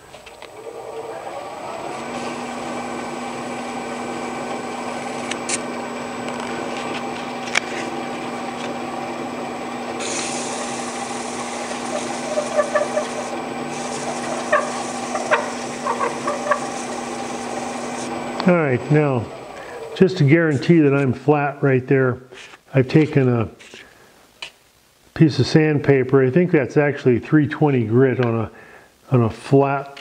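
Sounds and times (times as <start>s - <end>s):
wood lathe motor hum: 0.3s - 21.1s
sandpaper hissing on spinning wood: 10.0s - 18.3s.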